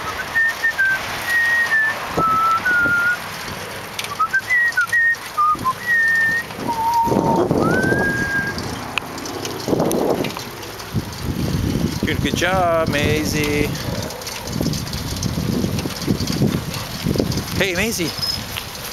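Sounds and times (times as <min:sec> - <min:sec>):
person whistling a tune: 0:00.0 - 0:03.2, 0:04.1 - 0:08.6.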